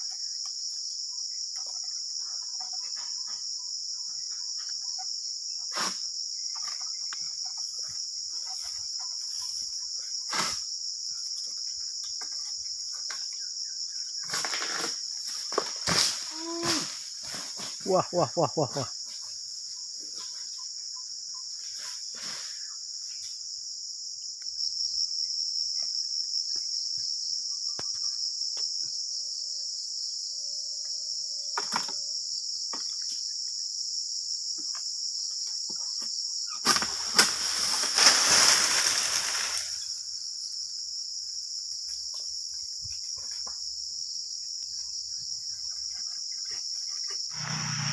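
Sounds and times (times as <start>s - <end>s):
insects shrilling: 4.2s - 20.6s, 36.3s - 40.7s, 44.7s - 47.9s
palm fronds rustling crash: 14.3s - 17.9s, 36.6s - 39.9s.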